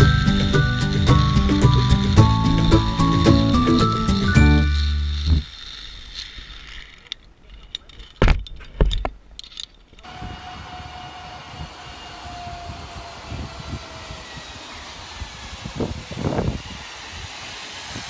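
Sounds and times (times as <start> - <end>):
background music: 0.0 - 4.9
trolley whirring along cable: 0.0 - 8.1, 9.4 - 18.0
zipline gear clicking and clanking: 0.0 - 18.0
wind rushing: 10.1 - 18.0.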